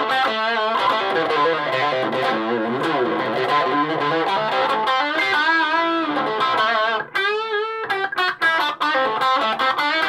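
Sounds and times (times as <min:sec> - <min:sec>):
overdriven electric guitar: 0:00.0 - 0:10.0.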